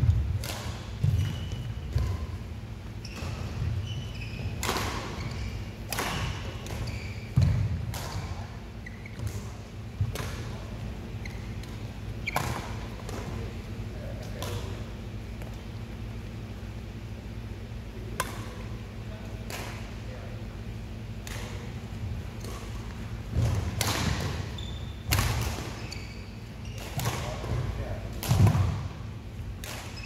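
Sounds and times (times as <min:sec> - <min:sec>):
rackets striking shuttlecock: 0:00.1 - 0:02.3, 0:04.4 - 0:08.4, 0:09.1 - 0:10.6, 0:11.4 - 0:13.4, 0:18.1 - 0:18.7, 0:22.4 - 0:24.5, 0:25.1 - 0:25.8, 0:26.8 - 0:28.8, 0:29.6 - 0:30.0
shoes squeaking on court: 0:01.0 - 0:09.6, 0:10.4 - 0:13.3, 0:24.1 - 0:27.7, 0:29.7 - 0:30.0.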